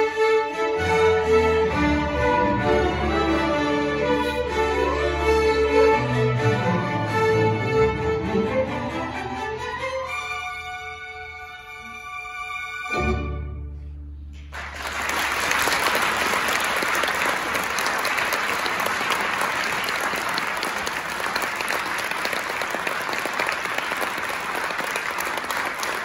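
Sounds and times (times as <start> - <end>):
orchestra music: 0.0 - 26.0
audience applauding: 14.4 - 26.0.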